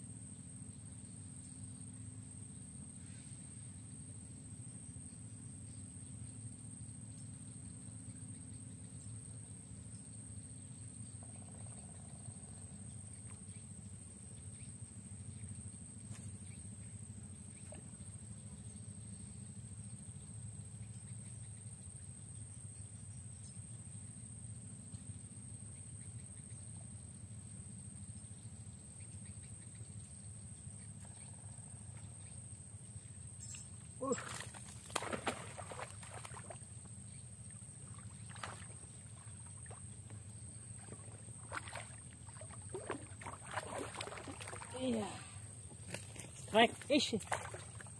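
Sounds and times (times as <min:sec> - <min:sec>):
faint ticks: 0:20.1 - 0:23.6, 0:28.0 - 0:33.7
low steady rumble: 0:34.6 - 0:47.9.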